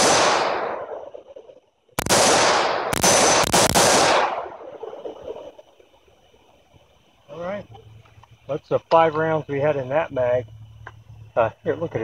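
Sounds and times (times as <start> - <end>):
rifle shots: 0.0 - 1.3, 2.0 - 5.4.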